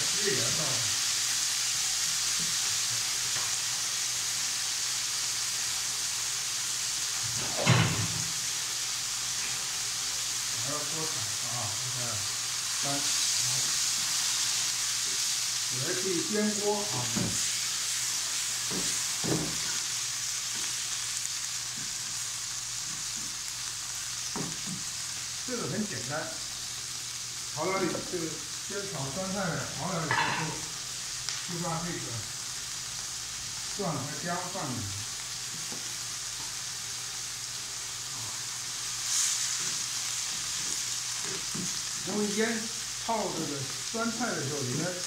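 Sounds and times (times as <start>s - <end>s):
greens sizzling in oil: 0.0s - 45.0s.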